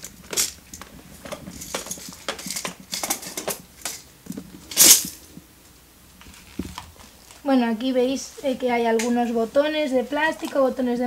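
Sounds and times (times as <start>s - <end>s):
jar of metal pieces rattling: 0.0s - 4.1s, 4.7s - 5.2s.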